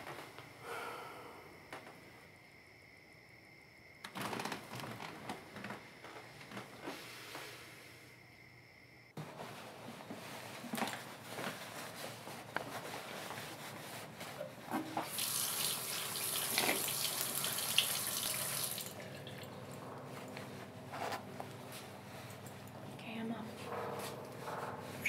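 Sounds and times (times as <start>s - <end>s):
tap running into sink: 14.7s - 19.6s.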